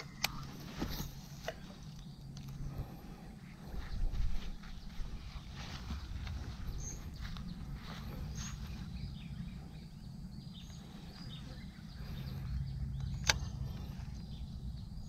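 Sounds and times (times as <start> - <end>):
faint bird chirps: 0.0 - 15.0
steady low rumble: 0.0 - 15.0
sharp click: 13.0 - 13.8.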